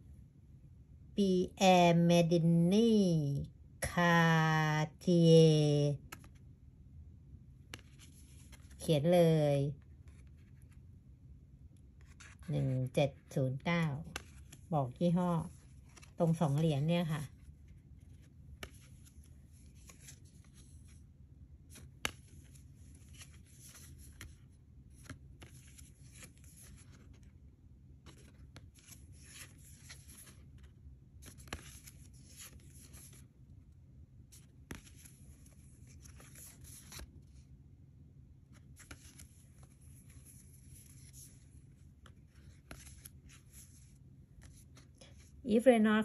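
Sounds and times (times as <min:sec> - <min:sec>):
cards sliding on cloth: 0:15.4 - 0:16.6, 0:17.6 - 0:27.3, 0:31.2 - 0:33.3, 0:34.3 - 0:37.3, 0:38.5 - 0:45.4.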